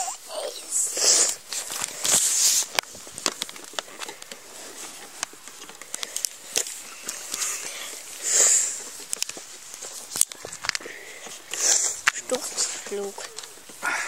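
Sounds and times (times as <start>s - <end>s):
light clicks and crackles: 0.7s - 14.0s.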